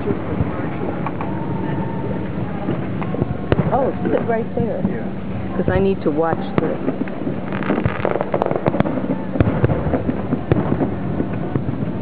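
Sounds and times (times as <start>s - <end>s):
fireworks shells bursting: 6.0s - 12.0s.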